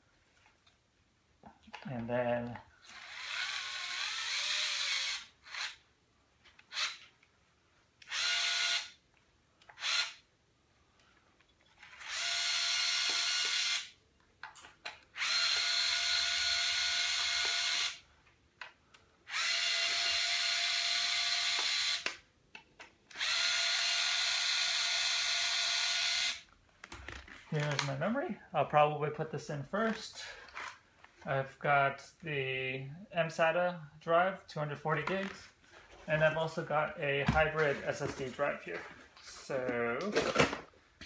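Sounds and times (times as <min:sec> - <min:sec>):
electric screwdriver whirring: 0:02.8 - 0:05.8, 0:08.0 - 0:09.0, 0:09.7 - 0:10.2, 0:11.8 - 0:13.9, 0:15.1 - 0:18.0, 0:19.3 - 0:22.2, 0:23.1 - 0:26.4.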